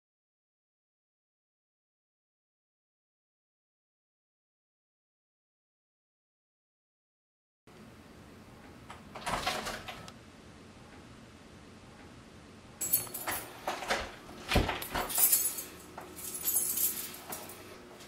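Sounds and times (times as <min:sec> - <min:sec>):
door clicks and knocks: 0:08.9 - 0:10.1, 0:13.7 - 0:15.2
keys jangling: 0:12.8 - 0:17.8.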